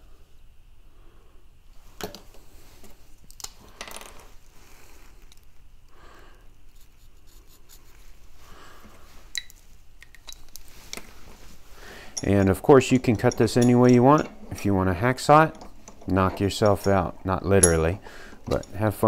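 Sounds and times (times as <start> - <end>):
marker scratching: 6.7 - 8.0.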